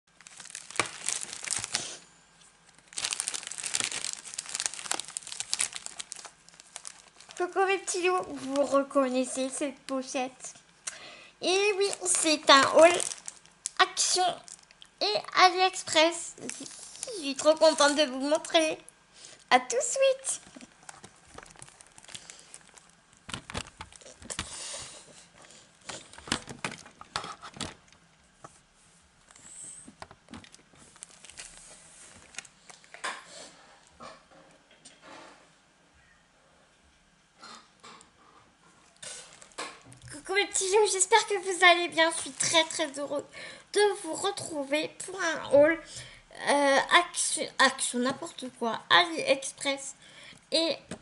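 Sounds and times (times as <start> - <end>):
plastic pouches crinkling: 0.1 - 2.0, 2.6 - 8.9, 11.6 - 15.0, 16.4 - 18.6, 20.2 - 24.5, 25.8 - 28.0, 30.1 - 33.0, 39.0 - 43.0.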